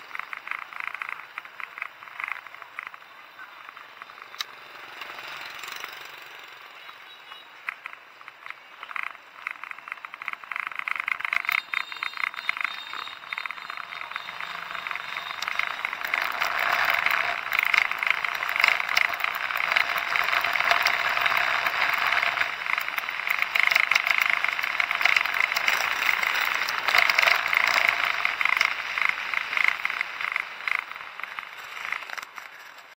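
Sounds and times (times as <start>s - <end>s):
motorbike road noise: 0.0s - 33.0s
fine rattling clicks: 0.1s - 3.0s, 7.6s - 32.9s.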